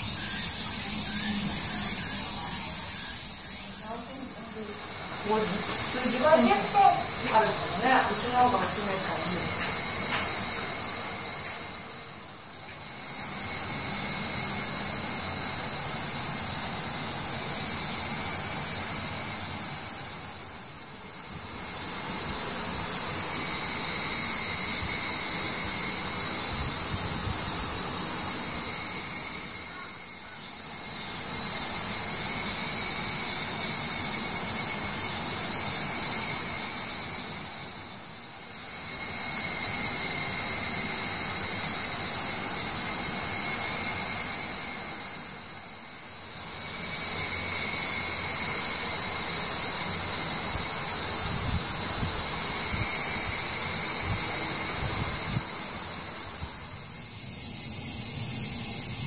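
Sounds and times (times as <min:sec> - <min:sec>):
faint steady tones: 0:00.0 - 0:46.3
high-pitched hiss: 0:00.0 - 0:59.0.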